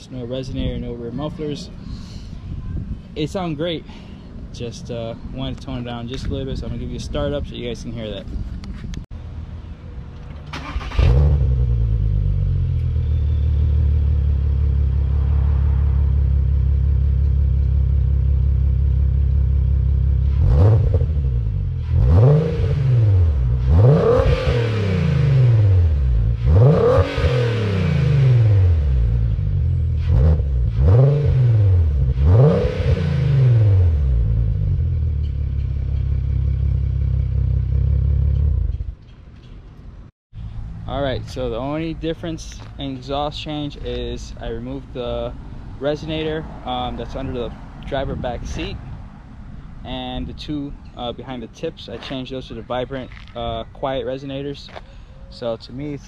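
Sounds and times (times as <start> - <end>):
car engine starting and idling: 10.0 - 39.1
engine revving: 10.5 - 38.8.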